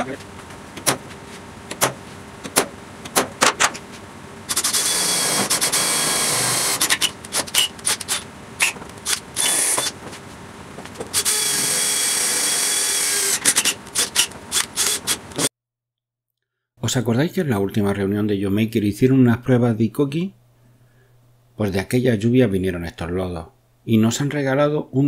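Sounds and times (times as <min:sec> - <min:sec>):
cordless drill boring sheet metal: 0:04.5 - 0:10.0, 0:11.1 - 0:15.5.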